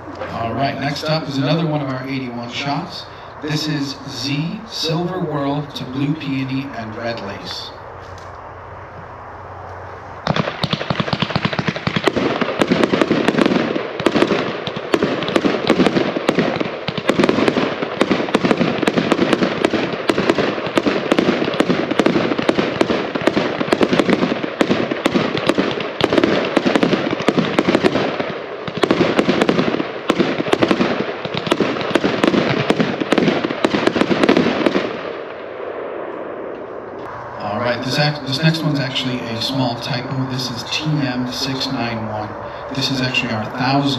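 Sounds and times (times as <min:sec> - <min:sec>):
fireworks barrage: 0:00.0 - 0:07.8, 0:09.9 - 0:43.9.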